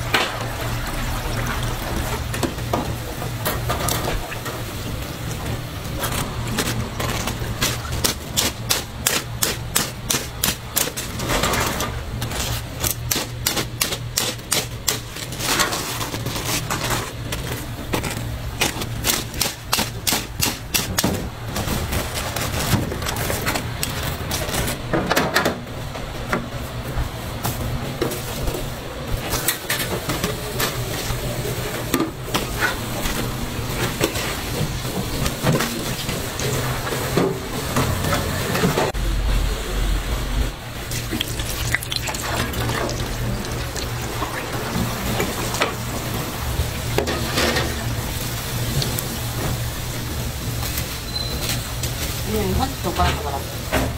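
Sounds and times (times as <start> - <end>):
deep-frying oil sizzling: 0.0 - 9.0, 33.7 - 53.9.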